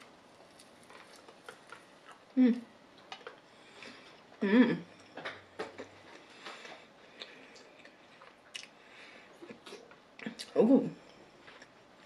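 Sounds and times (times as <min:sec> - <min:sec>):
chewing mouth clicks and smacks: 0:07.2 - 0:08.8.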